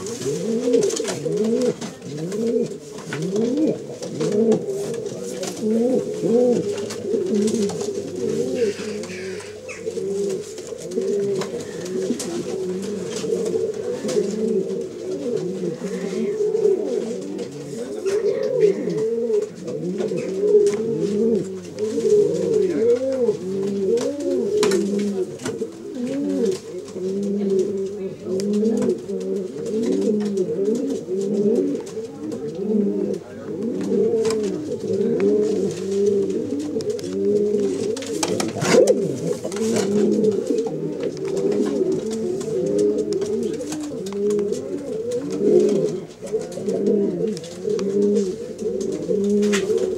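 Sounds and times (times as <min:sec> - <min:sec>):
pigeons cooing: 0:00.0 - 0:49.9.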